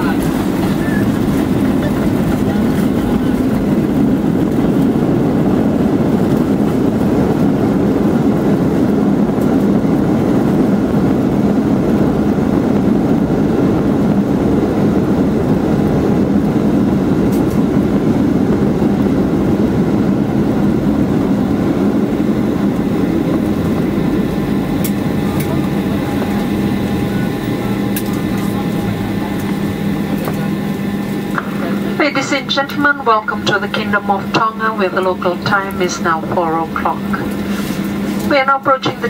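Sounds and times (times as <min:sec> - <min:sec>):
jet engines running: 0:00.0 - 0:39.0
wheels rumbling on pavement: 0:00.0 - 0:39.0.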